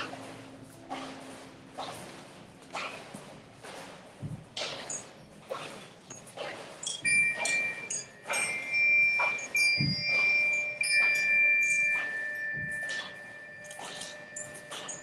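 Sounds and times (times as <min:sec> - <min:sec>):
bell-like chime tones: 0:07.0 - 0:15.0.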